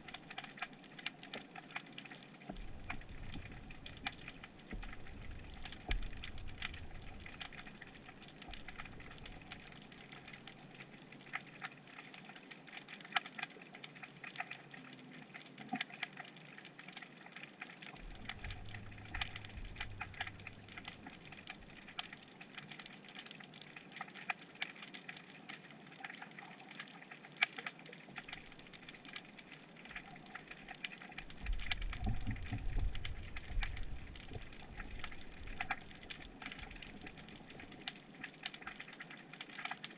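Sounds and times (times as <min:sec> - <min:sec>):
underwater crackling clicks: 0:00.0 - 0:39.9
low rumble: 0:18.0 - 0:21.9.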